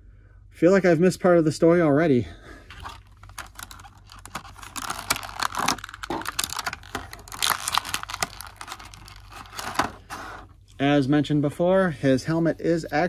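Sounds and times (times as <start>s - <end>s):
light plastic crinkling: 2.7s - 10.8s
plastic parts clicking: 2.8s - 10.0s.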